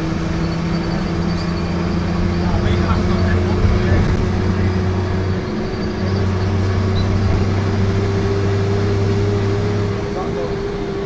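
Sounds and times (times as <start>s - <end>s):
steady whine: 0.0s - 8.4s
bus diesel engine droning: 0.0s - 11.0s.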